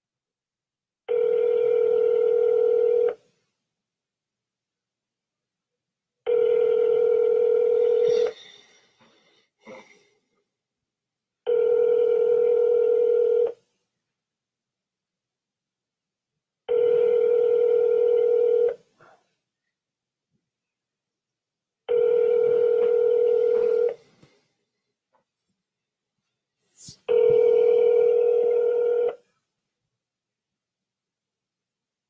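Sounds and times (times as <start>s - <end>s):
telephone ringback tone: 1.1s - 3.2s, 6.3s - 8.4s, 11.5s - 13.6s, 16.7s - 18.8s, 21.9s - 24.0s, 27.1s - 29.2s.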